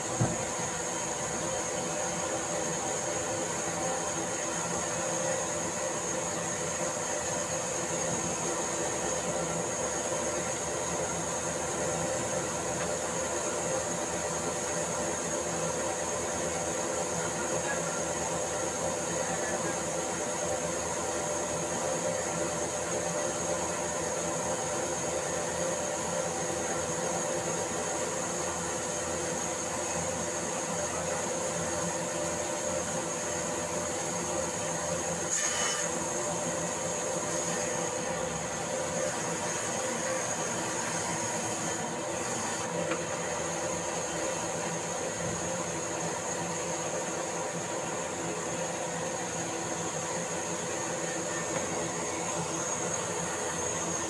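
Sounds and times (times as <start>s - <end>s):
band saw running: 34.1s - 54.0s.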